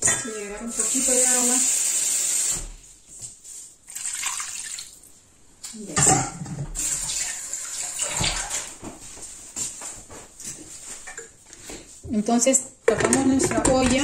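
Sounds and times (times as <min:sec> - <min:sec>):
water pouring into a pot: 0:03.9 - 0:05.1, 0:06.8 - 0:08.7.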